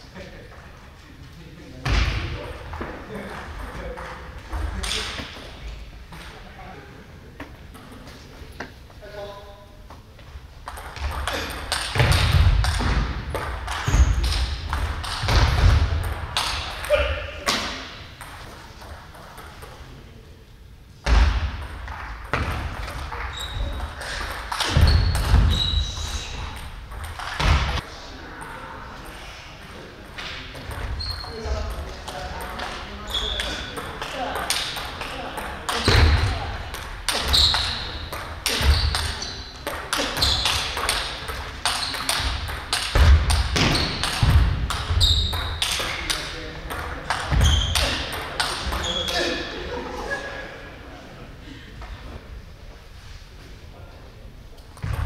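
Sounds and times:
shoes squeaking: 22.8 - 27.8, 30.8 - 31.6, 32.6 - 33.9, 37.1 - 42.4, 43.6 - 46.1
shoe squeaks on wooden floor: 23.3 - 23.8, 24.7 - 26.4, 30.9 - 31.4, 33.1 - 33.7, 37.2 - 38.0, 40.1 - 40.7, 44.9 - 45.5.

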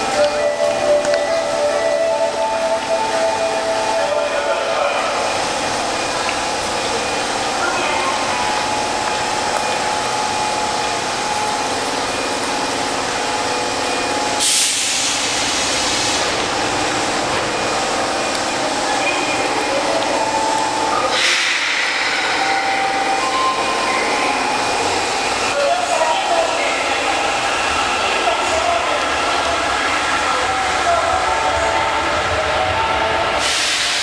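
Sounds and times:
subway train humming and rumbling: 0.0 - 34.0
sharp hiss of released air: 14.4 - 16.3, 21.1 - 22.4.

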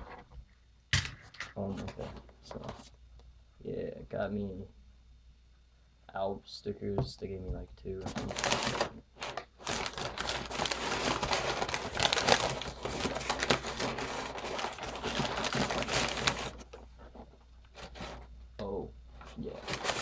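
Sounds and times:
packing paper crumpling: 8.0 - 18.2, 19.2 - 20.0.

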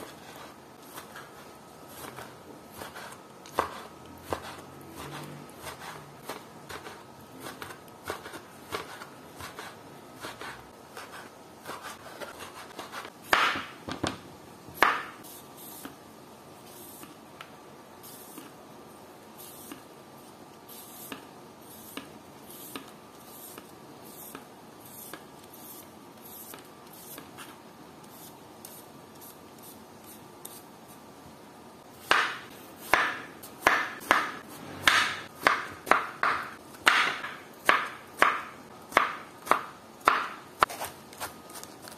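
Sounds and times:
knife chopping on cutting board: 0.0 - 14.2, 14.8 - 15.2, 32.0 - 41.9.

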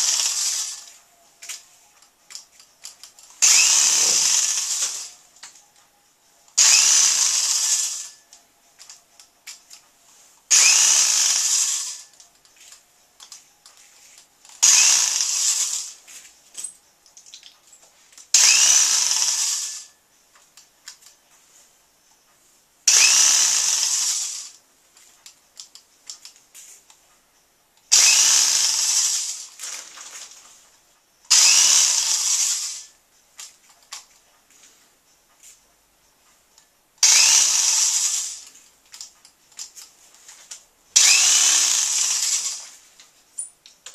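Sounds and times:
electric power drill whirring: 0.0 - 1.0, 3.4 - 5.2, 6.6 - 8.2, 10.5 - 12.2, 14.6 - 16.0, 18.4 - 20.0, 22.9 - 24.6, 27.9 - 30.2, 31.3 - 32.9, 37.0 - 38.6, 41.0 - 42.8.

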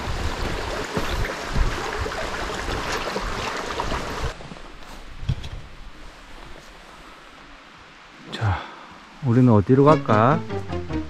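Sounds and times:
footsteps on bridge: 0.0 - 3.4
mountain stream rushing: 0.0 - 4.9.

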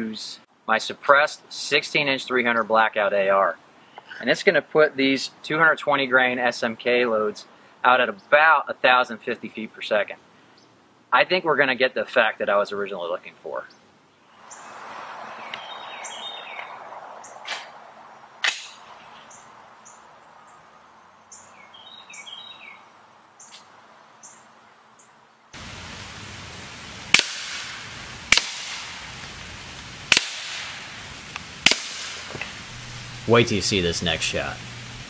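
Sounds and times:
birds chirping: 9.2 - 10.9, 12.4 - 25.5
suppressed gunshots: 27.1 - 28.9, 30.1 - 30.7, 31.6 - 32.4.

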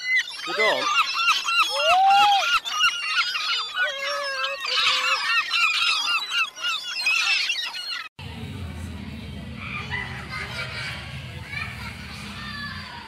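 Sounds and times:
gulls calling: 0.0 - 13.0
low hum: 8.2 - 13.0.

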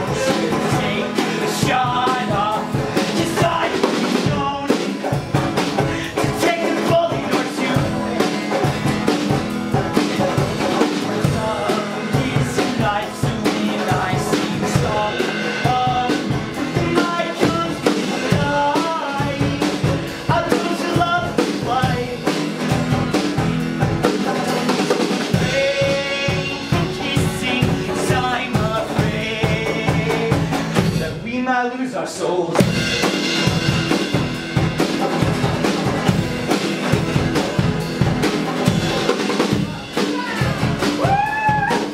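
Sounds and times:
man singing: 0.0 - 23.2, 24.0 - 33.8
acoustic guitar strummed: 0.0 - 31.2, 32.6 - 41.1
drum kit beats: 0.0 - 31.5, 32.4 - 41.9.

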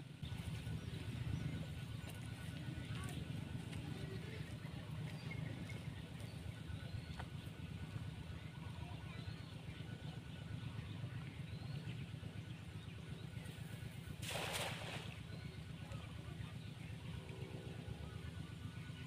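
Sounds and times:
steady low rumble: 0.0 - 19.0
net splashing into water: 14.2 - 15.2.

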